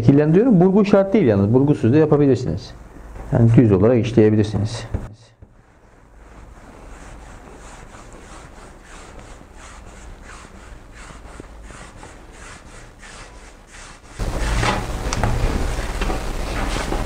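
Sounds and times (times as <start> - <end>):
hands rolling dough on marble: 5.4 - 17.0.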